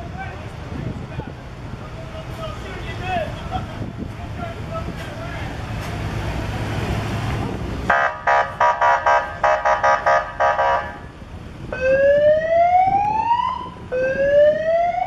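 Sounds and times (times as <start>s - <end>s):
electronic siren pulsing and wailing: 11.7s - 15.0s.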